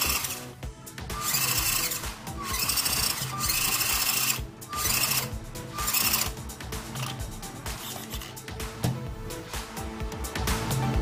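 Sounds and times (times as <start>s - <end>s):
toy truck electric motor whirring: 0.0s - 8.4s.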